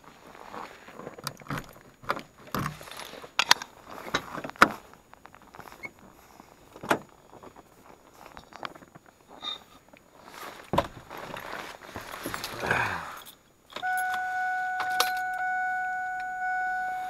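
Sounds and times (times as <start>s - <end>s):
car door opening click: 13.7s - 15.5s.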